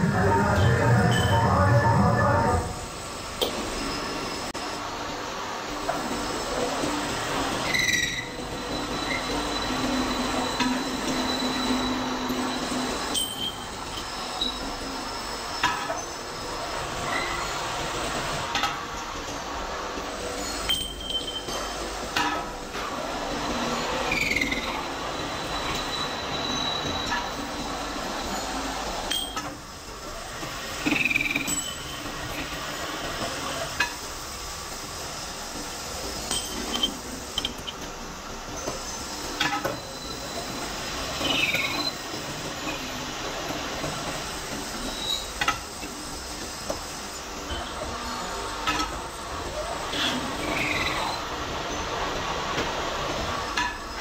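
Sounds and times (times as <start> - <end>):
metal lathe running: 5.8 - 17.2
metal on metal squeals: 7.6 - 13.8.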